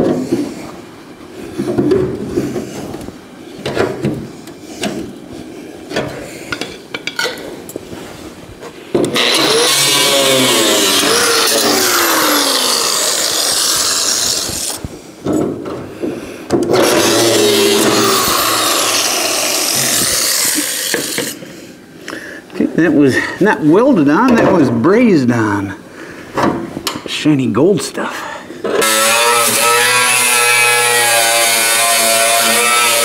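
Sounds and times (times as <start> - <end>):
cut-off wheel grinding screech: 9.1 - 14.8, 16.7 - 21.4.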